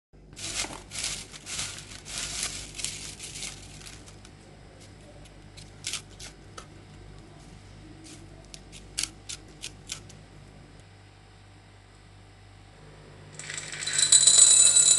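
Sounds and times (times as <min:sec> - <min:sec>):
low steady hum: 0:00.2 - 0:14.9
popcorn popping: 0:00.3 - 0:07.3, 0:08.0 - 0:10.2.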